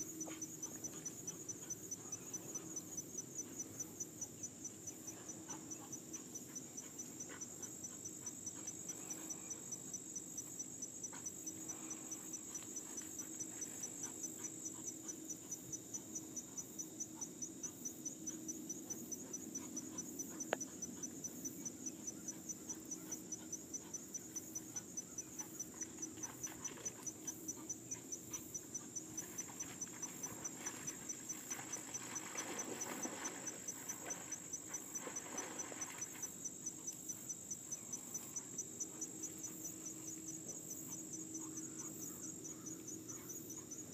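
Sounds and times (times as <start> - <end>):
insects chirping: 0.0 - 43.9
soft rustle: 29.2 - 37.1.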